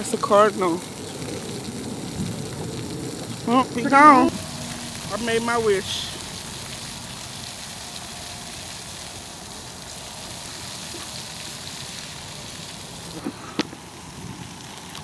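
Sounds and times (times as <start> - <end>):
outdoor background hiss: 0.0 - 15.0
wind rumble on microphone: 0.9 - 7.6.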